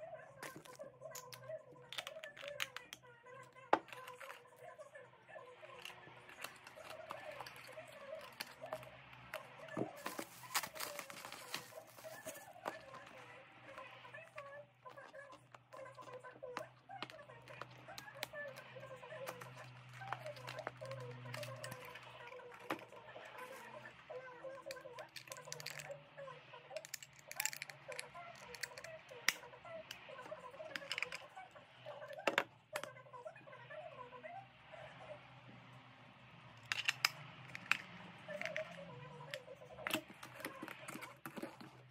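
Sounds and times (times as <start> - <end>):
faint television voices: 0.0 - 41.9
cardboard boxes handled: 9.7 - 13.8.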